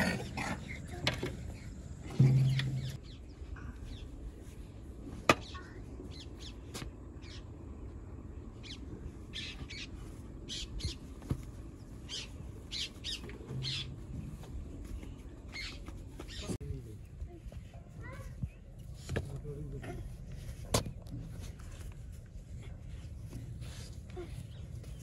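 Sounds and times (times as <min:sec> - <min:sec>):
bird calls and chirps: 0:08.6 - 0:11.1, 0:11.8 - 0:14.4, 0:15.0 - 0:16.6.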